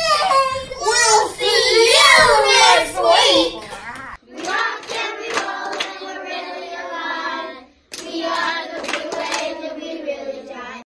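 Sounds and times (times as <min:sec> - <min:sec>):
hand claps: 0:04.4 - 0:06.0, 0:07.9 - 0:09.5.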